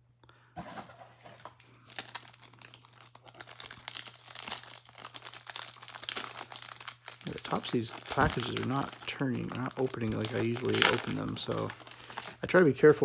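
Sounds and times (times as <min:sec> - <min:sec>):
foil wrapper crinkling and tearing: 0:00.6 - 0:13.0.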